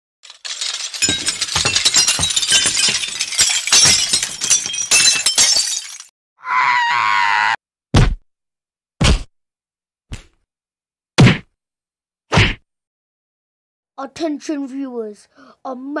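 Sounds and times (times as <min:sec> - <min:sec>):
crockery shattering: 0:00.2 - 0:06.1.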